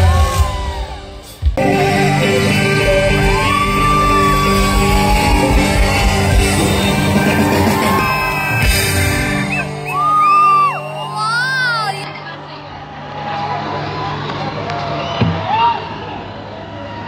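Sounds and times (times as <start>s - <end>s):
crowd shouting along: 0.0s - 12.0s.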